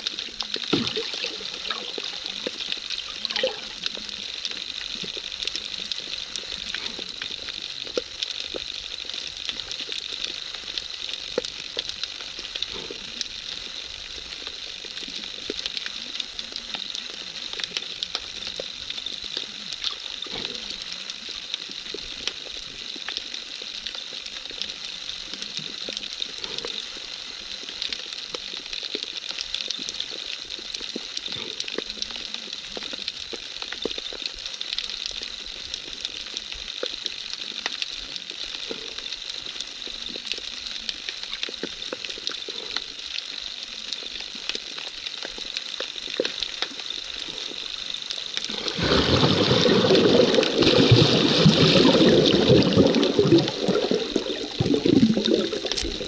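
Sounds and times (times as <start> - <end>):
small crackling clicks: 0.0 - 48.8, 50.0 - 56.0
underwater hiss: 0.0 - 56.0.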